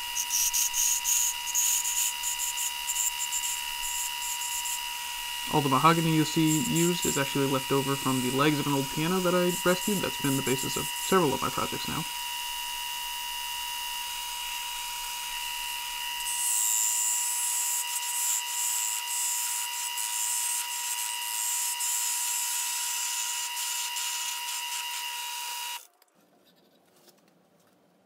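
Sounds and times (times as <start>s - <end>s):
tool scraping spinning wood: 0.0s - 12.8s
lathe motor whine: 0.0s - 25.8s.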